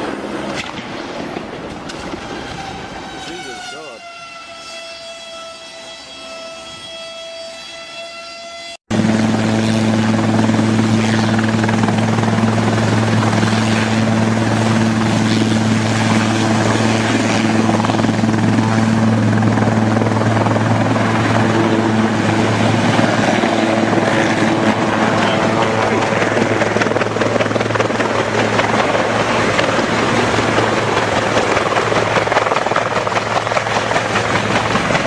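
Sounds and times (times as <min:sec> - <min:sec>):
helicopter hovering: 0:08.9 - 0:35.0.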